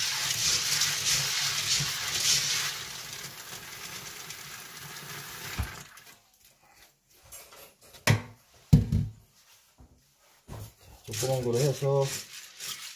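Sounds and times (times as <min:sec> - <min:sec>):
hands stirring beans in colander: 0:00.0 - 0:03.6, 0:10.6 - 0:12.9
tap water running: 0:00.0 - 0:06.2.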